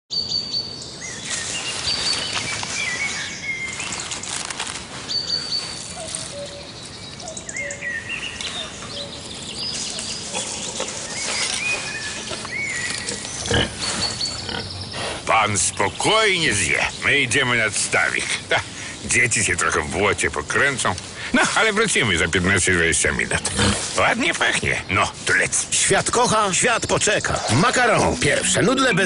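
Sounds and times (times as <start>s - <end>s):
birds chirping and whistling: 0.1s - 19.8s, 25.8s - 29.0s.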